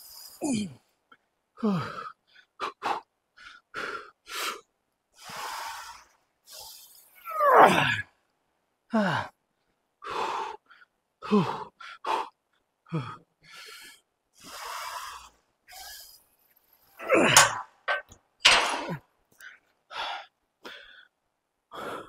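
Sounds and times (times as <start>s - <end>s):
man grunting: 0.4s - 0.8s, 7.3s - 8.0s, 17.0s - 17.6s
man breathing hard: 1.6s - 7.2s, 10.0s - 17.5s, 19.4s - 22.0s.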